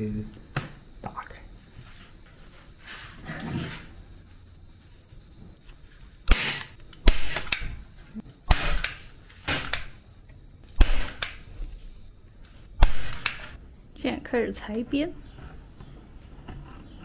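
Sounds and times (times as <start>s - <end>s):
nail gun firing into wood: 6.3s - 7.7s, 8.5s - 10.0s, 10.8s - 11.4s, 12.8s - 13.5s.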